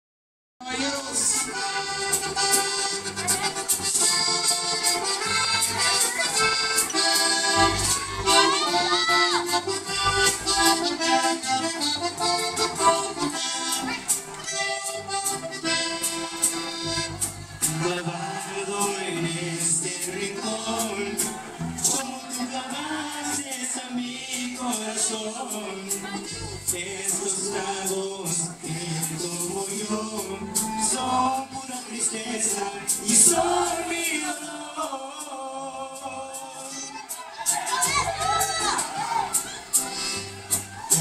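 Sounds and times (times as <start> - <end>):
low bass notes: 0.6 - 23.4, 25.7 - 34.1
button accordion melody: 0.6 - 41.0
steady beat: 0.8 - 34.2.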